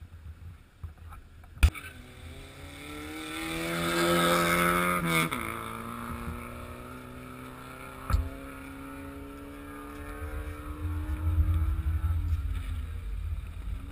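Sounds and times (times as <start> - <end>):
wind rumble on microphone: 9.7 - 13.9.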